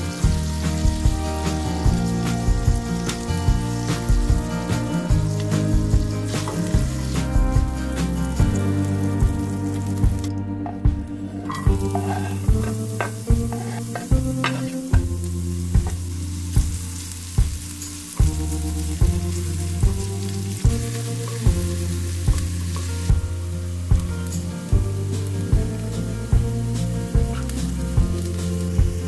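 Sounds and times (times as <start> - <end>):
background music with beat: 0.0 - 29.0
onion and garlic sizzling in pan: 0.0 - 29.0
spatula stirring in pan: 11.4 - 15.1.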